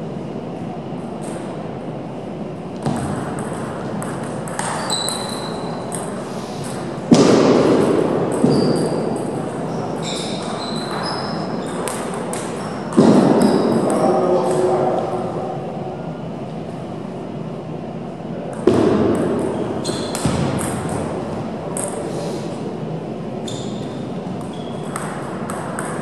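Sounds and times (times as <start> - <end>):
table tennis balls clicking: 2.8 - 6.9, 24.4 - 26.0.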